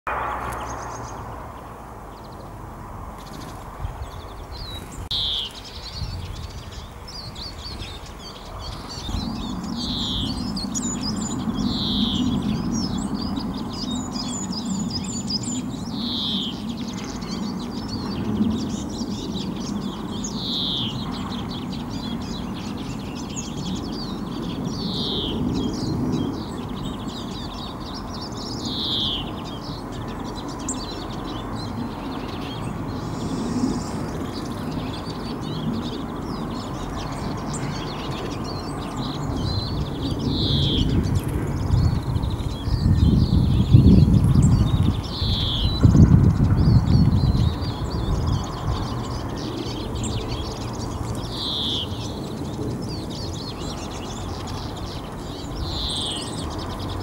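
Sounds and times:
steady low rumble: 0.1s - 5.1s
songbirds calling: 0.1s - 57.0s.

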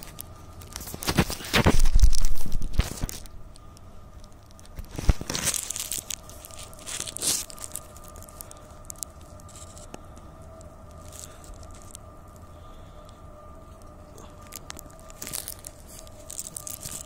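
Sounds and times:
faint steady hum: 0.0s - 17.0s
crackling rumbling microphone noise: 0.3s - 9.9s.

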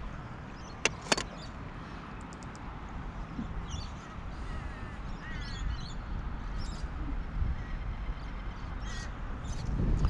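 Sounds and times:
wind rumbling on microphone: 0.0s - 10.0s
faint bird calls: 3.2s - 9.7s.

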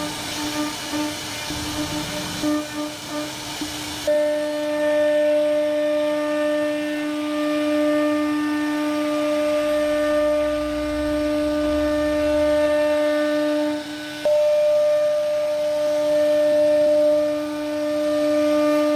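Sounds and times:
router spindle whining: 0.0s - 18.9s
low rumble: 1.2s - 3.0s, 9.5s - 14.0s.

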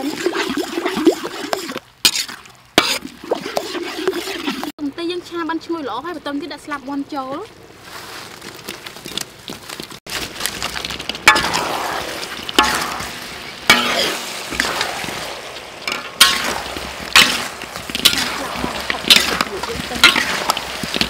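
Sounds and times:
chicken wings sizzling in a wok: 11.3s - 21.0s
metal spatula striking a wok: 13.7s - 14.2s, 15.9s - 21.0s.

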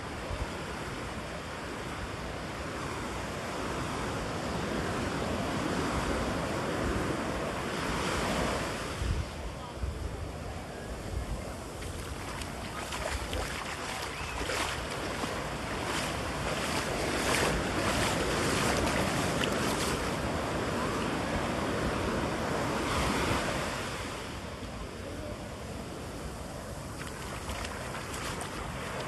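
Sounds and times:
wind rumbling on microphone: 0.0s - 29.0s
ocean surf breaking: 11.6s - 29.0s.

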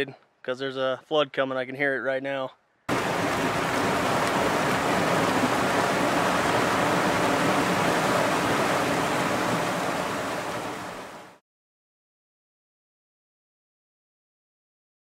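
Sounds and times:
floodwater rushing: 2.9s - 11.4s.

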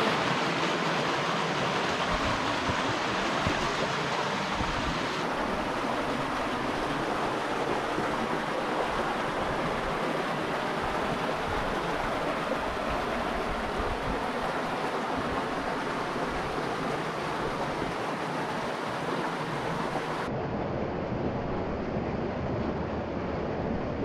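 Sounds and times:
creek water rushing: 0.0s - 20.3s
wind rumble on microphone: 2.0s - 10.0s, 20.2s - 24.0s.

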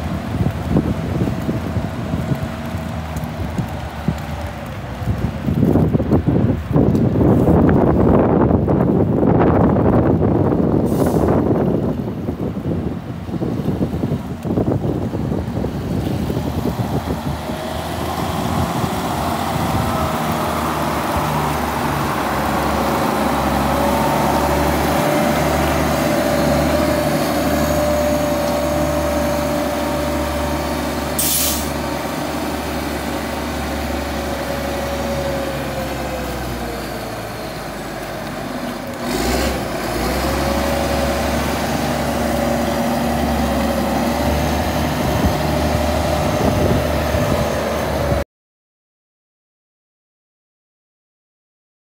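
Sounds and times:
motor grader diesel drone: 0.0s - 8.0s, 10.5s - 48.2s
engine whine: 0.0s - 12.6s, 13.2s - 48.2s
brief sharp hiss: 10.9s - 11.4s, 31.2s - 31.8s.

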